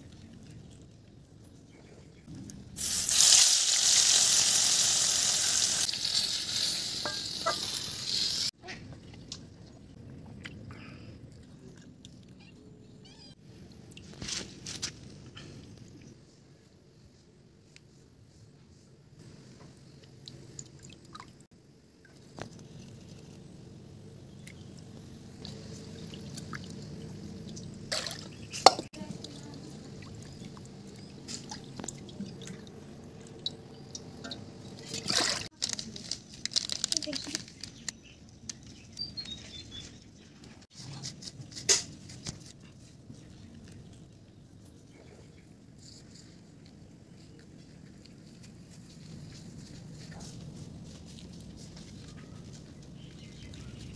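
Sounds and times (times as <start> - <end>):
water dripping: 19.8 - 22.2, 24.4 - 35.5
water splashing from bowl: 25.4 - 35.5
hands washing fish in water: 25.4 - 37.6
hands rustling a spice packet: 35.5 - 38.2
sharp crackle: 35.5 - 38.6.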